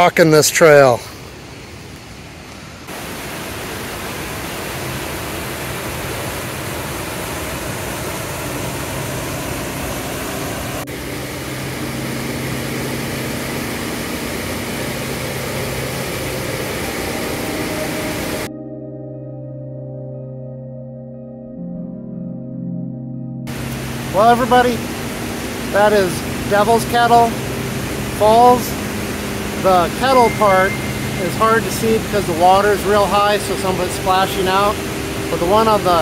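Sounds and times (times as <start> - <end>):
waterfall roaring: 0.0 - 18.5, 23.5 - 36.0
trail ambience: 0.4 - 18.5, 23.5 - 36.0
faint low tones: 10.8 - 36.0.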